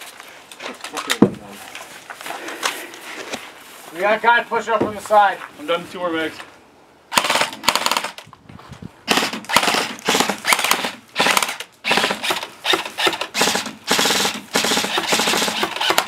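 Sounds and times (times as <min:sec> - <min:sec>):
airsoft rifles full-auto bursts: 0:07.1 - 0:08.2, 0:09.1 - 0:16.0.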